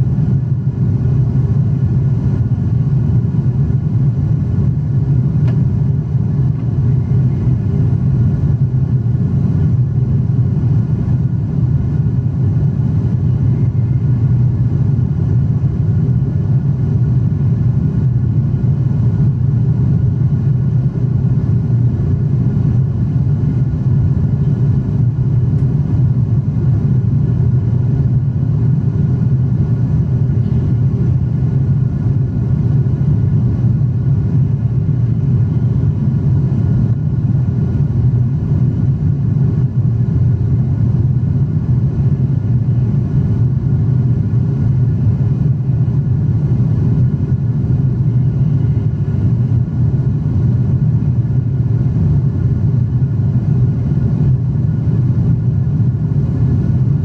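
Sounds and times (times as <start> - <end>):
jet cabin rumble: 0.0 - 57.0.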